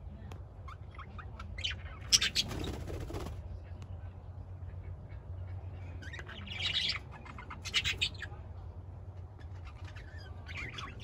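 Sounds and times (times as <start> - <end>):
budgerigars chirping: 0.7 - 2.8, 5.2 - 8.4, 9.4 - 11.0.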